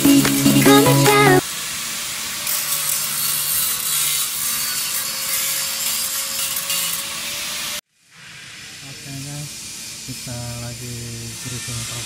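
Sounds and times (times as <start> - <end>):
workshop noise: 0.0 - 1.4
welding arc crackling hiss: 1.3 - 12.0.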